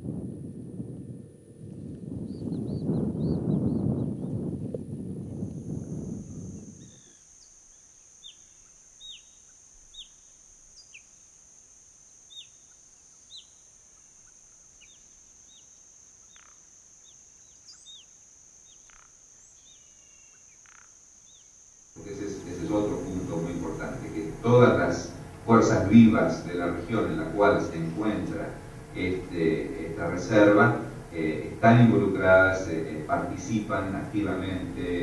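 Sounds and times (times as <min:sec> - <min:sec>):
steady high-pitched whine: 0:00.0 - 0:35.0
birds chirping: 0:02.2 - 0:04.4, 0:12.3 - 0:35.0.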